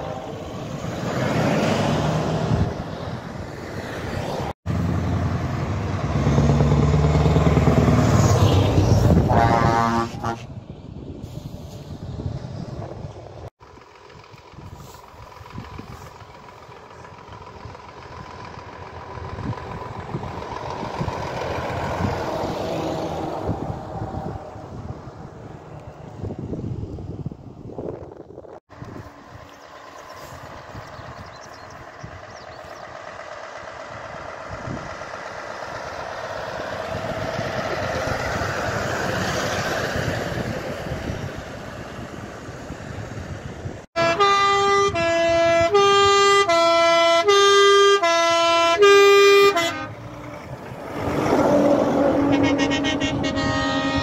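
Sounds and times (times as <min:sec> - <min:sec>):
truck driving by: 0:00.0 - 0:54.0
truck passing with steady tone: 0:00.0 - 0:54.0
musical air horn: 0:08.4 - 0:10.5, 0:44.0 - 0:50.2, 0:51.9 - 0:54.0.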